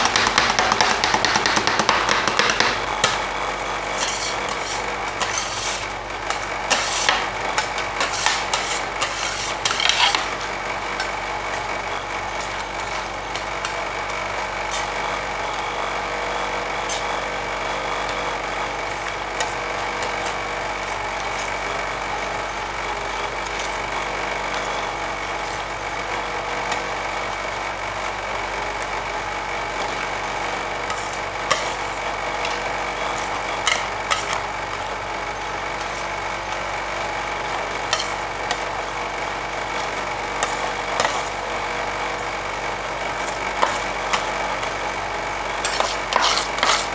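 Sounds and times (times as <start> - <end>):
ice cream machine humming: 0.0 - 46.9
metal spatulas scraping steel plate: 3.9 - 10.4, 30.9 - 31.8, 32.4 - 34.4, 37.9 - 38.2, 39.8 - 41.4, 45.6 - 46.9.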